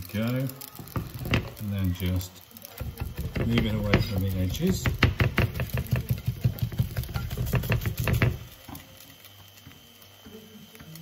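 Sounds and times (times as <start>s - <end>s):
spatula scraping frying pan: 2.8s - 8.8s.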